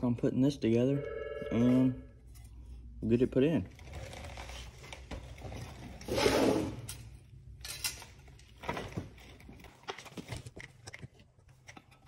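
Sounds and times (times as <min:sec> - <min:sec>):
parts clattering on concrete floor: 0:04.1 - 0:12.0.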